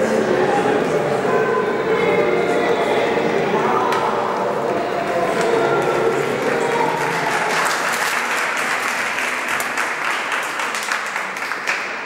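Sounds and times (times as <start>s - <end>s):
audience applauding: 5.1s - 12.0s.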